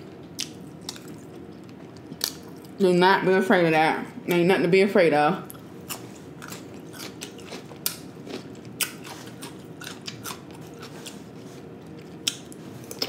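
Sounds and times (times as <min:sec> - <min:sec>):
crisp chewing crunches: 0:00.4 - 0:02.8, 0:05.5 - 0:13.0.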